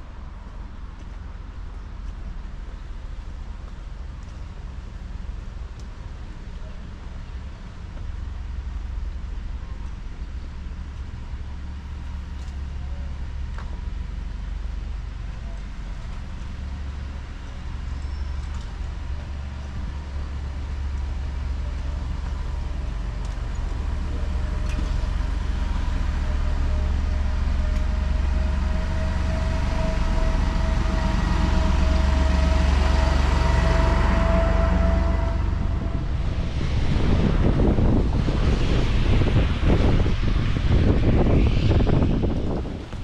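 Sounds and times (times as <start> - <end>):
low rumble: 0.0 - 43.0
vehicle engine running: 7.3 - 43.0
steady whine: 12.4 - 43.0.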